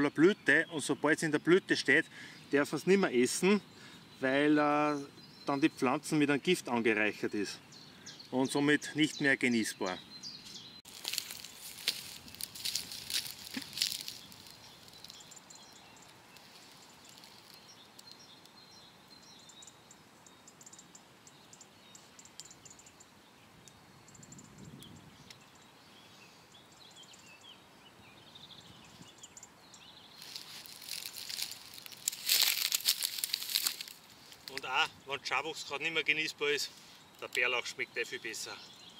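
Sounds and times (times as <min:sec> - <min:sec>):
faint small birds chirping: 0:00.0 - 0:38.9
dry vegetation rustling: 0:10.3 - 0:18.6, 0:30.0 - 0:35.0.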